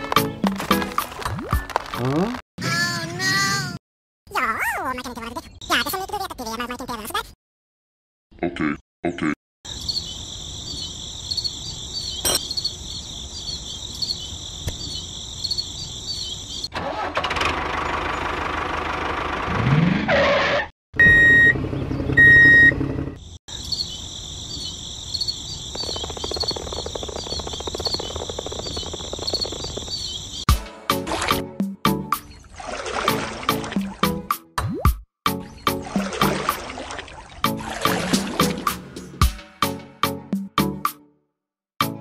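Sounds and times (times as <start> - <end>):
crickets chirping: 9.7 - 16.7, 23.5 - 30.4
vehicle engine starting: 16.6 - 23.2.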